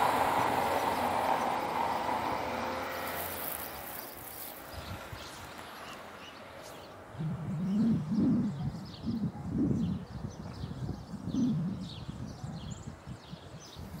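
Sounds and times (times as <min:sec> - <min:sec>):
dove cooing: 0:07.2 - 0:10.0, 0:11.2 - 0:12.0.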